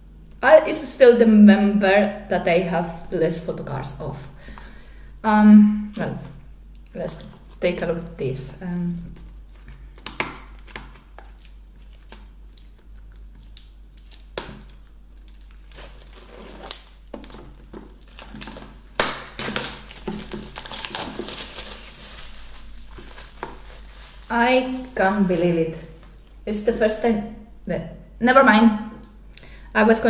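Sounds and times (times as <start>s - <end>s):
plastic shrink-wrap crinkling: 6.0s - 26.4s.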